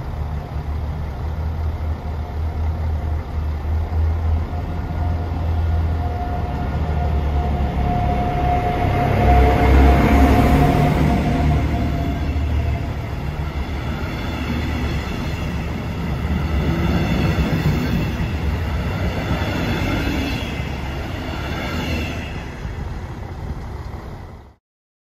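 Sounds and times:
train engine and wheels rumbling: 0:00.0 - 0:24.6
high-pitched wheel squeal: 0:04.5 - 0:22.8.

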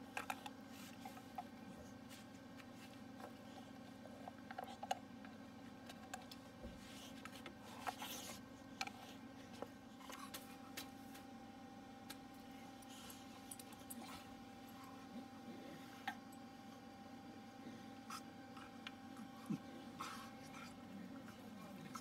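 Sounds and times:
dog gnawing a chew: 0:00.0 - 0:11.3
low room hum: 0:00.0 - 0:22.0.

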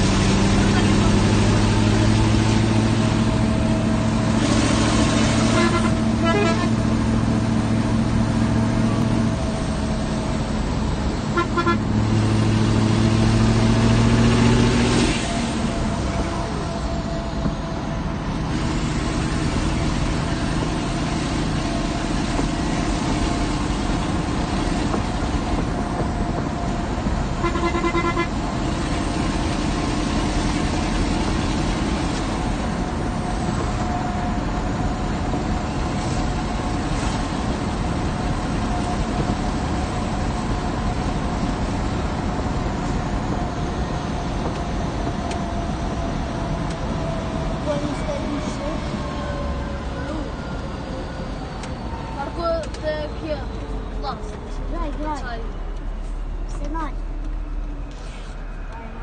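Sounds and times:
diesel truck engine running: 0:00.0 - 0:59.0
road noise: 0:00.0 - 0:59.0
truck horn: 0:04.4 - 0:07.1, 0:11.2 - 0:12.1, 0:27.3 - 0:28.4
constant whine: 0:14.8 - 0:59.0.

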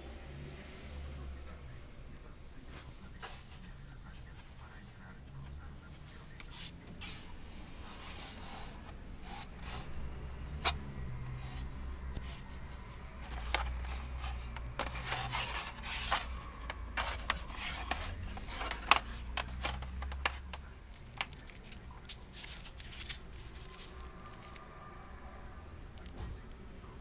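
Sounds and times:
hands handling cables on plastic: 0:10.5 - 0:24.6.

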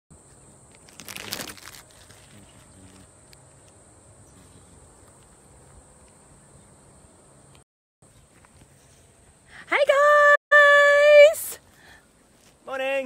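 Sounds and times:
high-pitched insect buzz: 0:00.2 - 0:07.3.

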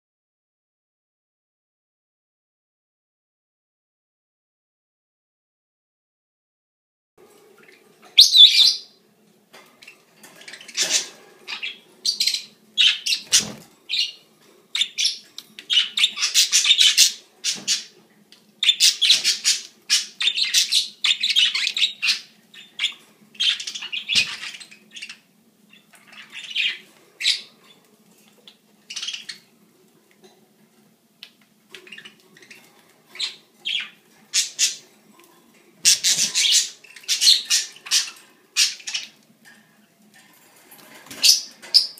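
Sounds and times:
budgerigars chirping and chattering: 0:07.6 - 0:09.0, 0:09.8 - 0:18.0, 0:18.6 - 0:27.8, 0:28.4 - 0:29.6, 0:31.7 - 0:35.0, 0:35.8 - 0:39.2.

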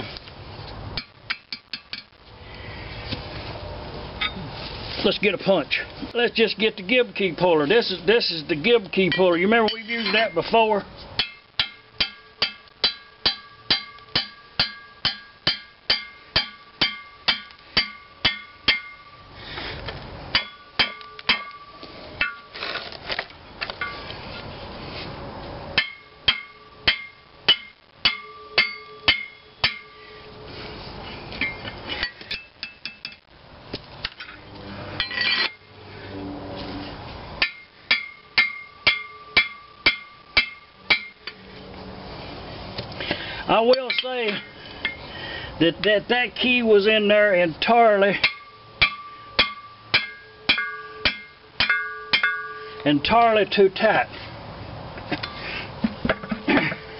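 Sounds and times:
hammer blows on metal ringing: 0:25.8 - 0:30.3, 0:37.4 - 0:41.4, 0:48.2 - 0:52.9.

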